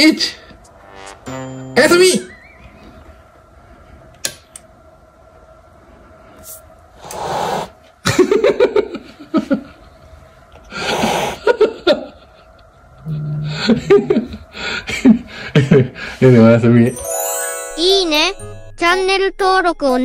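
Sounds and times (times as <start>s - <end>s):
breathy laughter: 10.7s - 16.2s.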